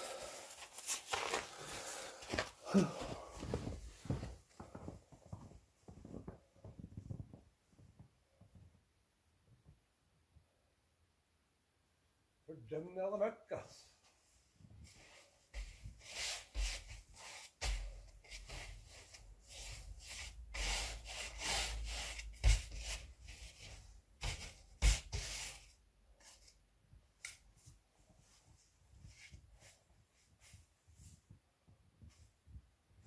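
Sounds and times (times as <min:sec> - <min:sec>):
stiff broom sweeping snow: 0:15.6 - 0:25.7.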